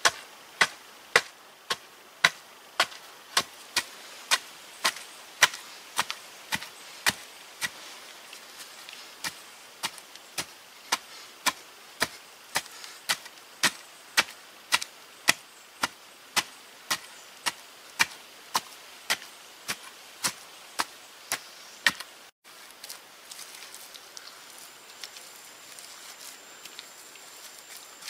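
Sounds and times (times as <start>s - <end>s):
digging stick striking hard clay: 0.0s - 7.8s, 9.2s - 22.1s.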